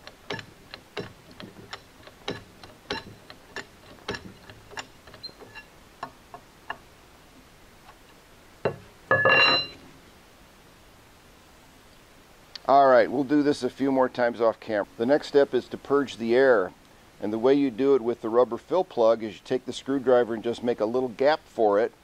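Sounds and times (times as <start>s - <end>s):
hand pump metallic clicks: 0.0s - 6.8s
metallic rattle: 0.0s - 6.8s.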